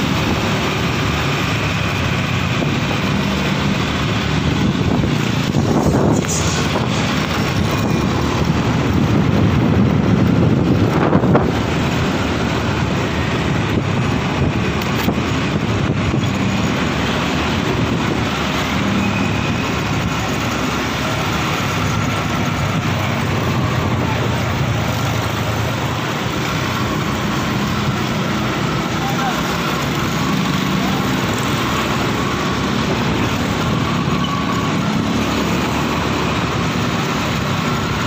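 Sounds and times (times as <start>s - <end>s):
vehicle engine and road noise: 0.0s - 38.0s
wind buffeting microphone: 1.7s - 28.5s.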